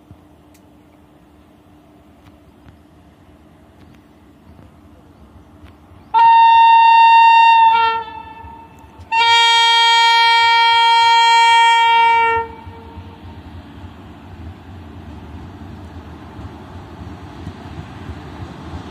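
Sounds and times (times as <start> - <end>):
train rumble: 0.0 - 18.9
locomotive horn blasts: 6.1 - 13.3.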